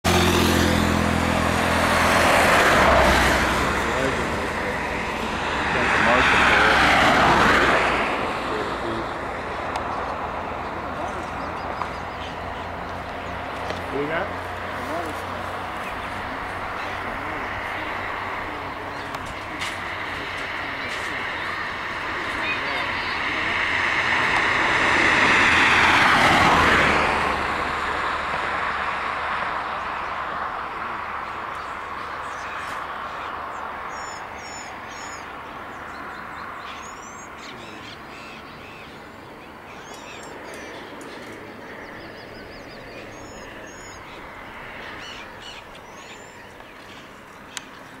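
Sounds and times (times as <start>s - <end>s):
motor vehicle passing: 0.0s - 48.0s
high chirping bird calls: 9.0s - 23.5s, 31.5s - 48.0s.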